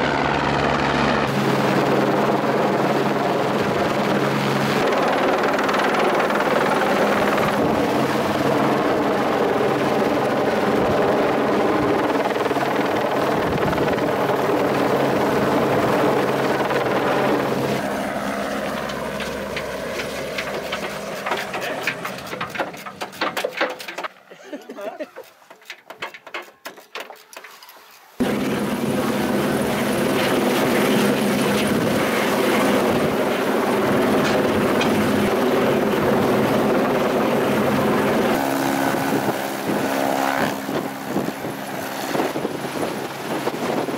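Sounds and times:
helicopter rotor and turbine: 0.0s - 23.8s, 28.2s - 43.9s
sharp knocks: 18.8s - 24.2s, 25.5s - 27.5s.

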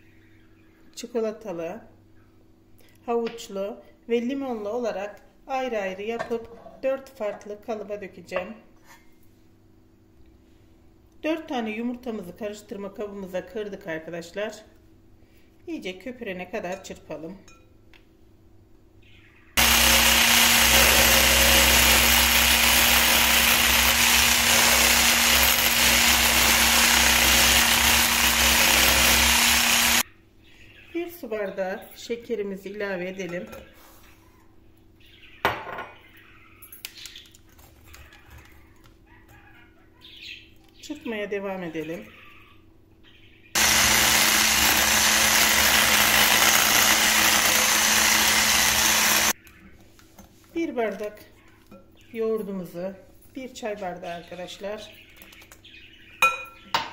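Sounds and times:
electric mixer beating eggs: 19.6s - 30.0s, 43.6s - 49.4s.

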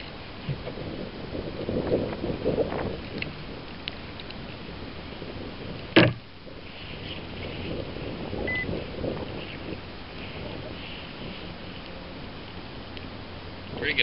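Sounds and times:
knocks and bumps in kayak: 0.0s - 4.6s, 5.4s - 11.8s
wind and water hiss: 0.0s - 14.0s.

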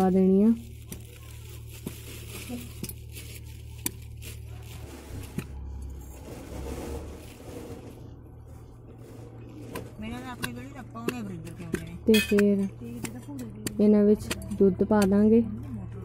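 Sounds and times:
grain scooped from plastic bag: 0.6s - 9.5s.

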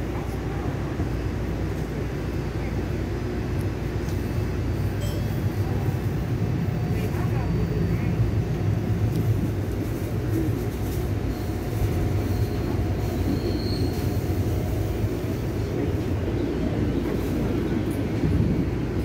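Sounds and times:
trolley car rumbling: 0.0s - 19.0s
wheels squealing on rails: 10.4s - 15.5s.

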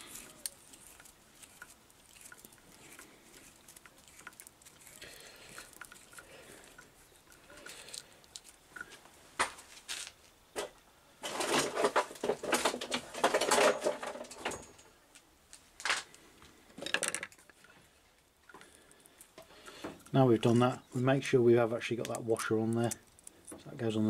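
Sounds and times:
cable and tools clattering on wood: 0.0s - 14.9s, 16.7s - 17.8s.

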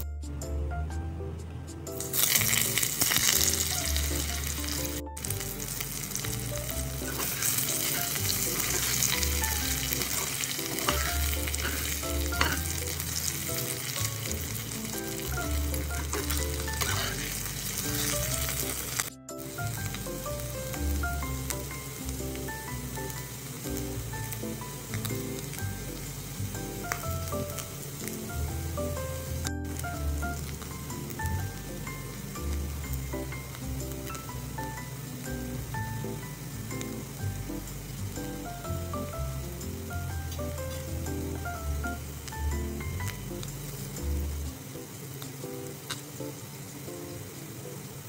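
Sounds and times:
potatoes sizzling in oil: 1.9s - 48.0s
spatula stirring in pan: 6.1s - 19.1s.

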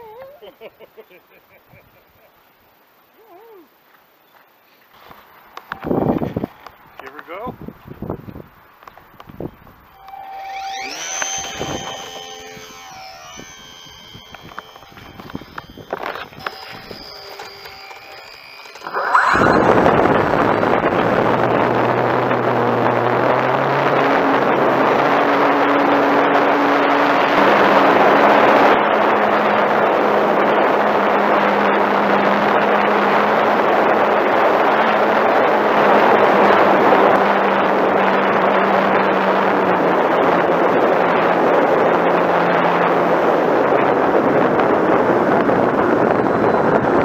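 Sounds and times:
wind rushing over microphone: 5.7s - 10.0s, 18.8s - 32.8s, 33.4s - 47.0s
model airplane motor and propeller: 9.9s - 47.0s.

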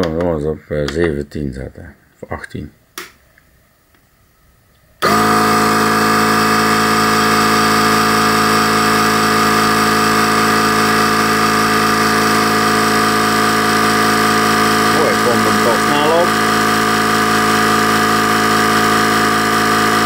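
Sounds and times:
air compressor running: 5.0s - 20.0s.

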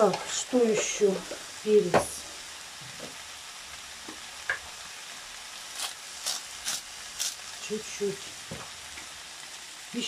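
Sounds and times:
cabbage sizzling in a frying pan: 0.0s - 10.0s
pepper shaker shaking: 5.7s - 7.6s.

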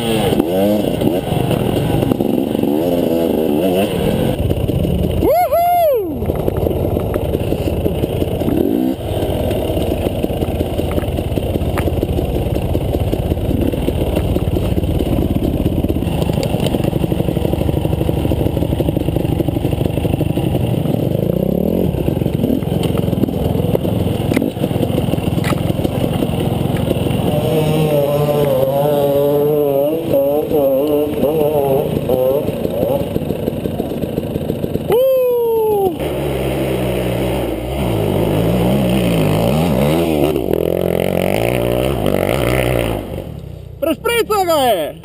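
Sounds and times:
dirt bike engine revving: 0.0s - 45.0s
bike clattering over rough ground: 6.2s - 29.2s.

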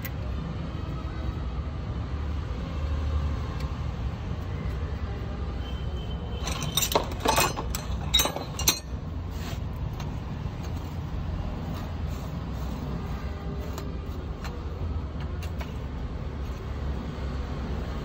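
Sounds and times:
metal tools clinking: 6.4s - 9.1s.

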